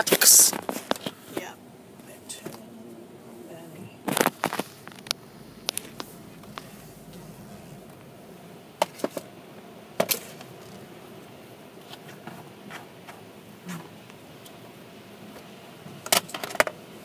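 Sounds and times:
car cabin hum: 1.4s - 9.9s.

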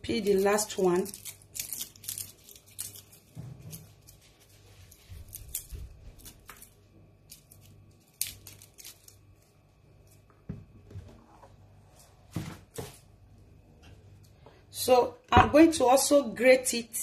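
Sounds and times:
peel crackling: 0.0s - 10.5s
knife scraping garlic skin: 0.2s - 9.4s.

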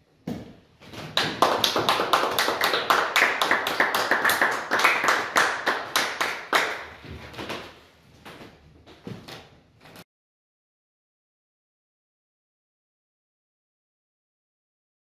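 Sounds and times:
small audience applauding: 1.0s - 7.7s.

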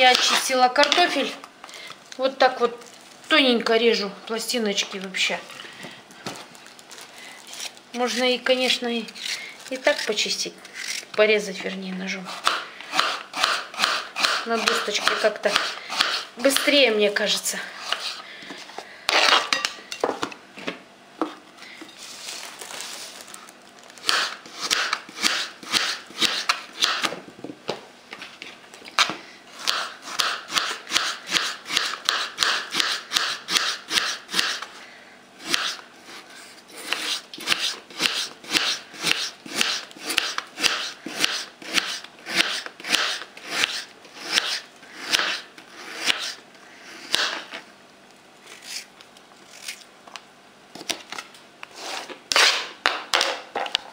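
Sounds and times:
knife slicing potato on board: 12.3s - 16.3s, 24.0s - 27.1s, 35.4s - 35.8s, 36.8s - 46.4s.

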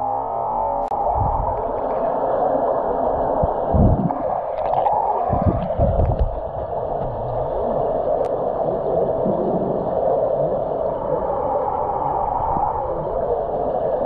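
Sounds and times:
underwater rushing hum: 0.0s - 14.0s
low underwater thuds: 3.4s - 4.3s, 5.3s - 7.6s.

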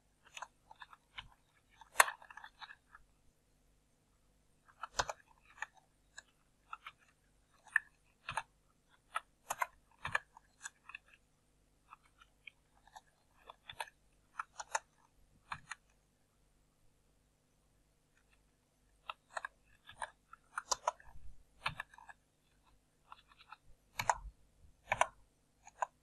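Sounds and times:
computer keyboard keystrokes: 23.2s - 26.0s.

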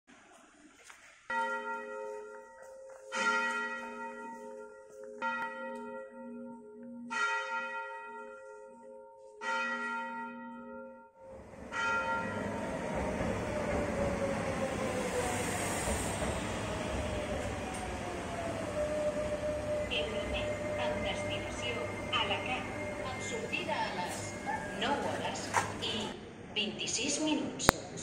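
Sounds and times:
church bell tolling: 1.3s - 14.9s, 16.3s - 26.2s
train rushing: 11.3s - 26.8s.

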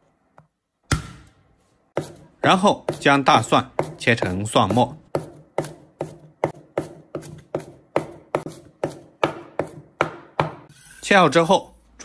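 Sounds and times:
cleaver chopping on wooden board: 5.1s - 10.6s.

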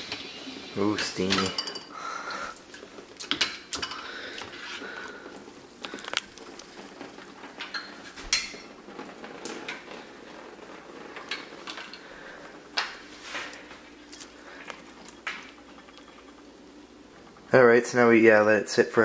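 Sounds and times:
dishes clinking and knocking: 1.2s - 2.0s, 3.2s - 4.5s, 7.6s - 8.8s.

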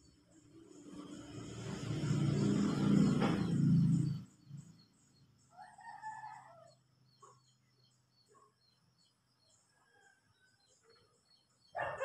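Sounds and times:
small birds chirping: 0.0s - 12.0s
rooster crowing: 5.5s - 6.8s.

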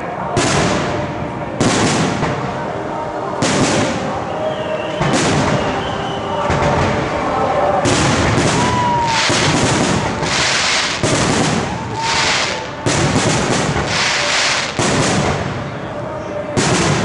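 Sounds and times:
firework shells bursting: 7.9s - 15.5s
sizzling hiss of falling stars: 8.6s - 12.8s, 13.7s - 14.8s.

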